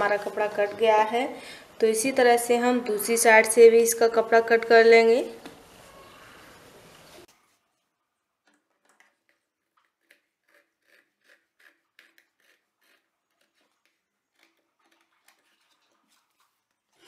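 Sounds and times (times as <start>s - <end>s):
scissors cutting denim: 10.0s - 14.6s.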